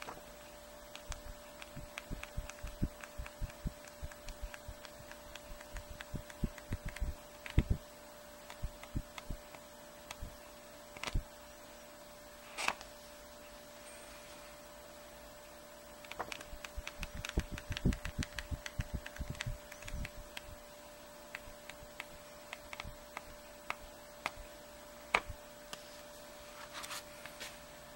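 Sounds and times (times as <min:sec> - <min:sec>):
faint steady hum: 0:00.0 - 0:27.9
flipbook pages flicking: 0:00.9 - 0:07.7, 0:16.0 - 0:20.5.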